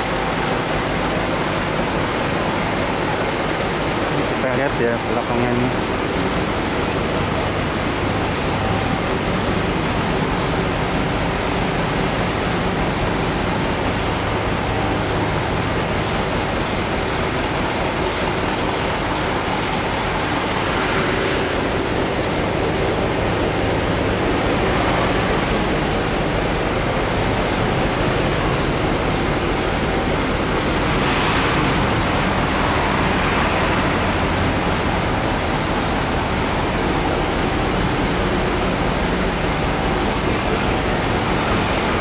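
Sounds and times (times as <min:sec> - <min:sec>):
bus engine idling: 0:00.0 - 0:42.0.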